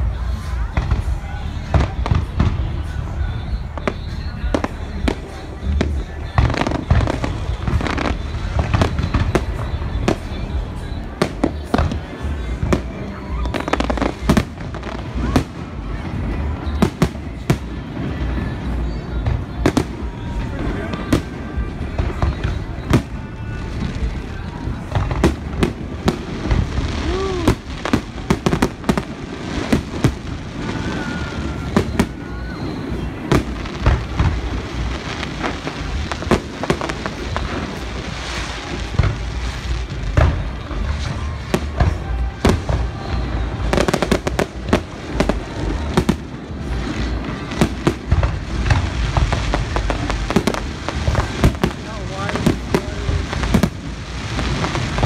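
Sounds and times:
fireworks bursting with bangs: 0:00.0 - 0:55.0.

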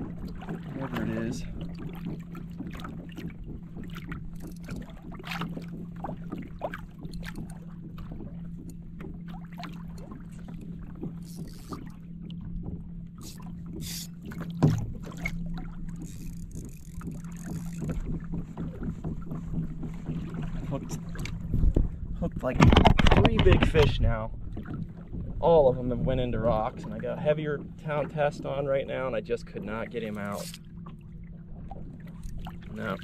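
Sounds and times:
boat engine low hum: 0:00.0 - 0:33.0
clicks and knocks from gear: 0:02.1 - 0:05.8, 0:21.2 - 0:23.9.

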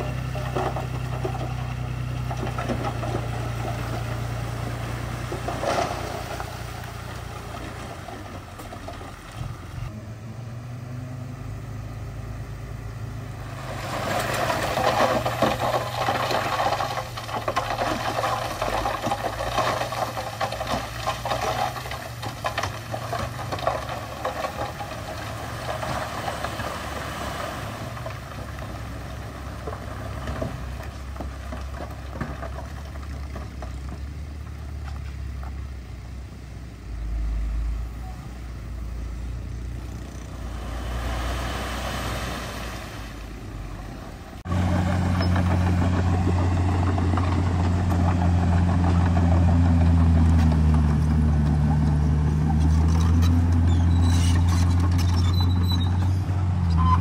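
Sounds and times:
tracks clanking and rattling: 0:00.0 - 0:09.9, 0:13.9 - 0:35.6, 0:44.3 - 0:57.0
bulldozer diesel engine running: 0:00.0 - 0:57.0.

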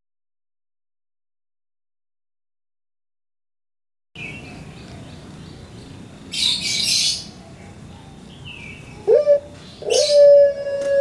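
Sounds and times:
small birds chirping: 0:04.2 - 0:10.2
dove cooing: 0:08.9 - 0:11.0.

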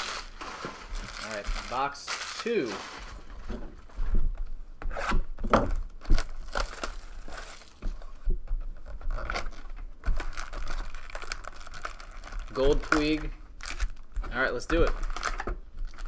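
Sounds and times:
packaging crinkling and tearing: 0:00.0 - 0:03.4, 0:05.7 - 0:07.8, 0:08.8 - 0:16.0.

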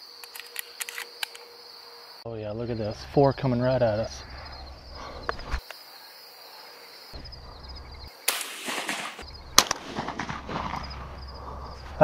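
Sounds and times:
loud shotgun shot: 0:08.3 - 0:11.1.

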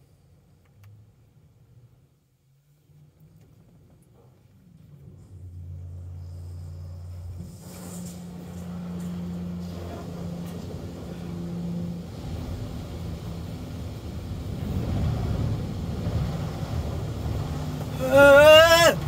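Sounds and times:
steady low hum: 0:04.4 - 0:19.0
water spraying on car roof: 0:08.2 - 0:19.0.

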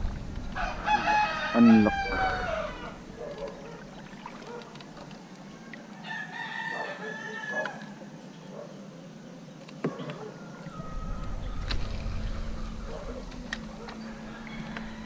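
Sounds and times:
rooster crowing: 0:00.6 - 0:03.0, 0:06.0 - 0:08.0, 0:10.4 - 0:15.0.

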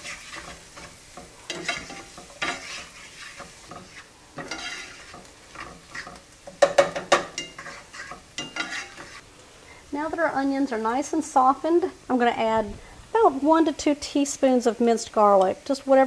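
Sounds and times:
wooden spoon scraping skillet: 0:00.0 - 0:09.3
onions sizzling in butter: 0:00.0 - 0:16.0.

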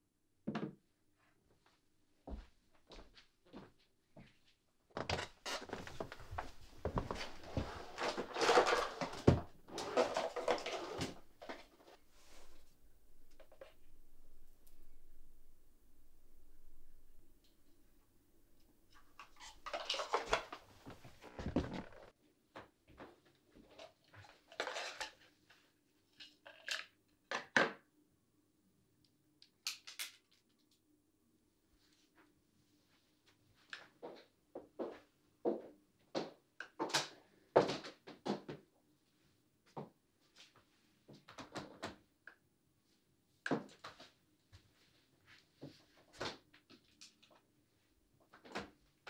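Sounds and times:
rustling: 0:05.6 - 0:22.2
objects knocking and clicking: 0:18.9 - 0:22.1
objects knocking on furniture: 0:21.2 - 0:22.0.

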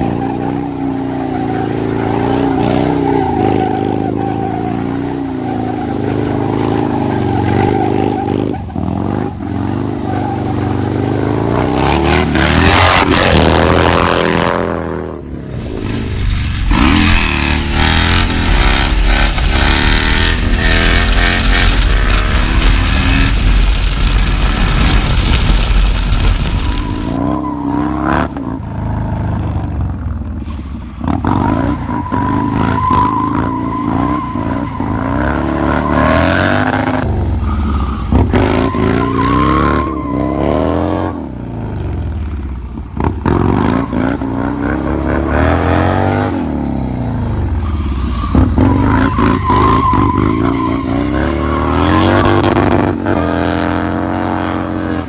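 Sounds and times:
motorcycle engines revving: 0:00.0 - 0:25.3, 0:26.7 - 0:55.0
heavy low rumble: 0:15.2 - 0:27.2.

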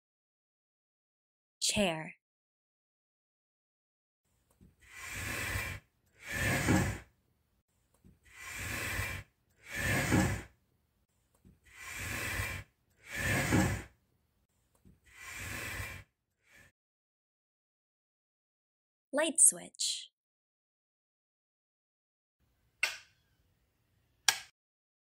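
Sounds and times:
rocking chair creaking: 0:04.6 - 0:07.0, 0:08.3 - 0:10.5, 0:11.7 - 0:13.9, 0:14.8 - 0:16.0.

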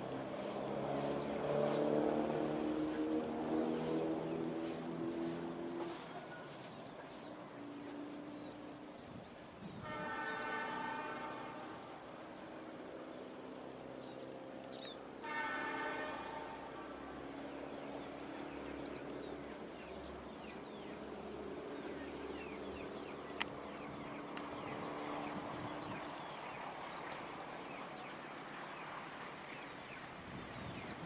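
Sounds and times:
diesel engine hum: 0:00.0 - 0:08.9
small birds chirping: 0:00.0 - 0:15.6, 0:16.3 - 0:31.0
locomotive horn blast: 0:00.1 - 0:06.7, 0:09.8 - 0:12.5, 0:15.2 - 0:19.1.

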